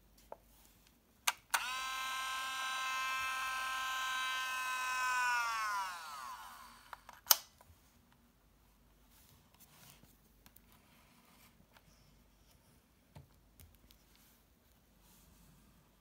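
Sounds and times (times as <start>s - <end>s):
film motor whirring: 1.5s - 7.2s.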